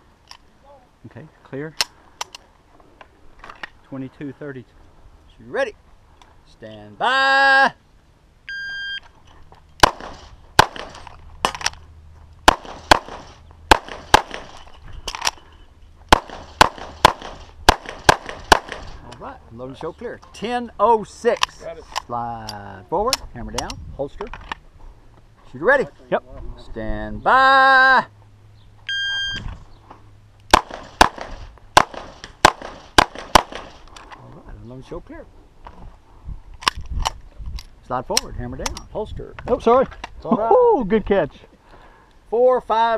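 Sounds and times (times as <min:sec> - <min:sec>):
pistol shots: 0:09.8 - 0:11.7, 0:12.4 - 0:14.6, 0:16.1 - 0:19.0, 0:30.5 - 0:33.8
shot timer beep: 0:28.9 - 0:29.4.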